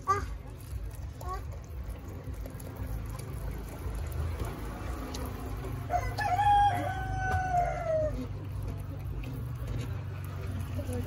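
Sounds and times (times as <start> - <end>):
rooster crowing: 5.9 - 8.3.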